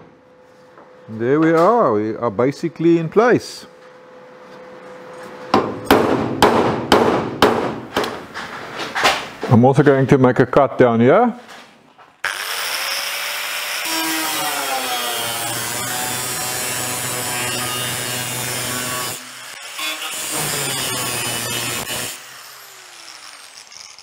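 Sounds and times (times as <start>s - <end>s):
angle grinder cutting steel: 12.2s - 24.0s.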